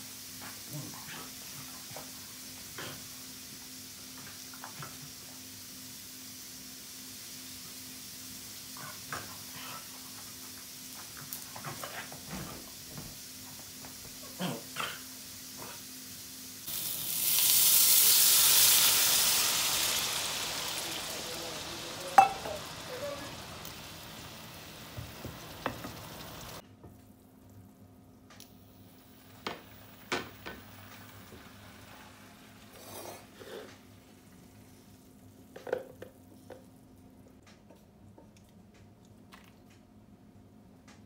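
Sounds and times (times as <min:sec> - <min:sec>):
water sizzling in a hot frying pan: 0:00.0 - 0:26.6, 0:28.5 - 0:35.6
metal knock on pan: 0:22.2 - 0:22.5.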